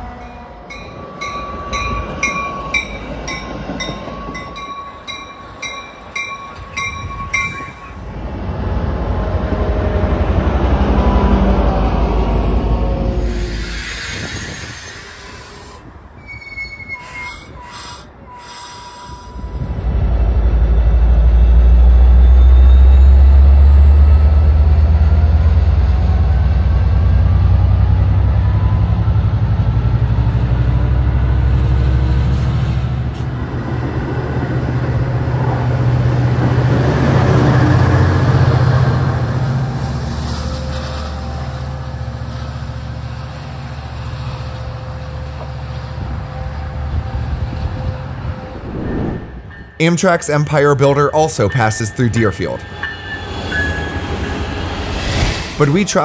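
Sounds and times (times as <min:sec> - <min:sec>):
diesel locomotive engine drone: 0:00.0 - 0:56.0
thin rising whine: 0:48.5 - 0:49.8.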